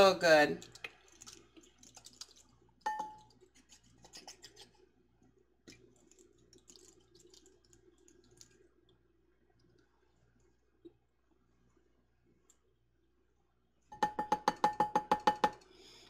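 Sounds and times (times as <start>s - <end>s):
faint clicks and scratches: 0.6s - 11.0s
glass jar clink: 2.9s - 3.3s, 14.0s - 15.5s.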